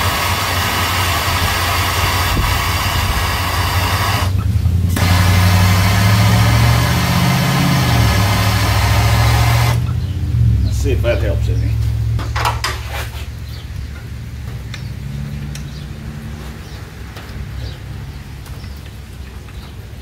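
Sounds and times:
gas torch burning: 0.0s - 10.0s.

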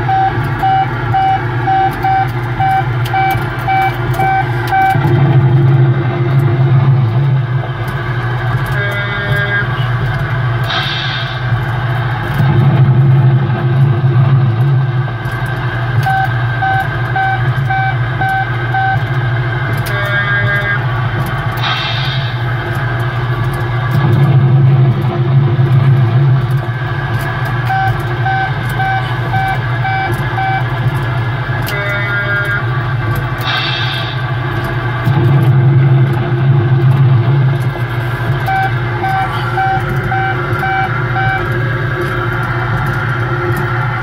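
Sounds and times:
short beeps: 0.0s - 5.0s, 16.0s - 19.0s, 27.7s - 30.6s, 38.5s - 41.5s
low engine rumble: 0.0s - 44.0s.

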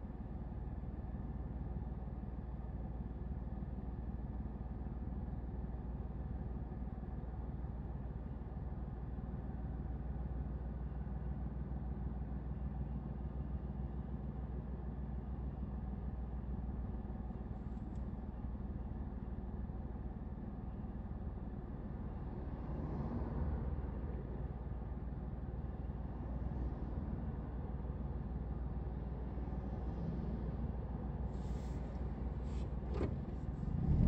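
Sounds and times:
car engine idling: 31.4s - 34.0s.

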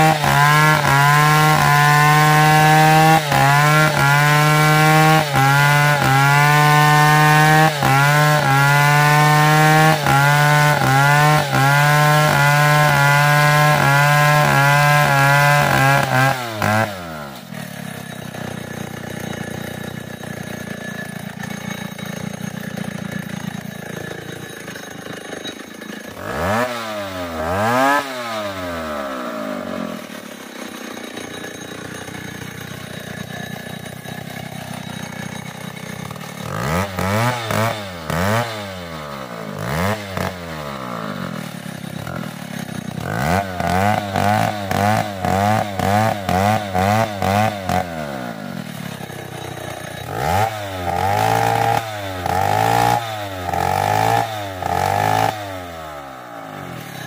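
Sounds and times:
chainsaw idling and revving: 0.0s - 57.0s.

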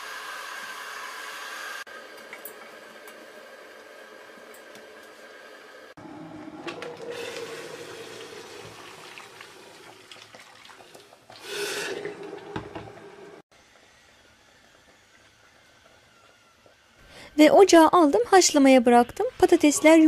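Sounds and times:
water pouring into a metal pot: 6.8s - 12.6s.

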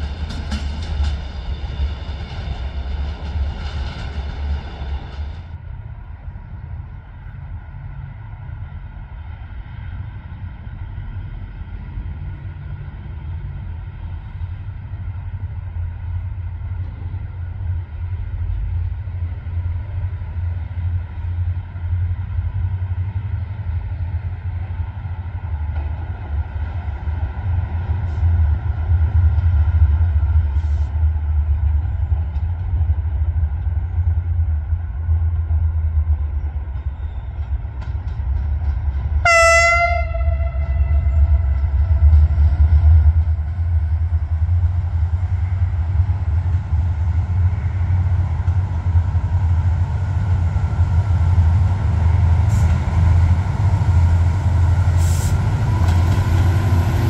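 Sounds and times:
diesel locomotive engine rumble: 0.0s - 57.0s
locomotive horn blast: 39.2s - 41.8s.

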